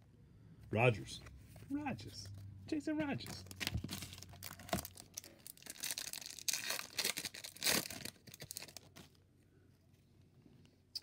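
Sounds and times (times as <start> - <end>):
wrapper tearing and crinkling: 3.4 - 9.1.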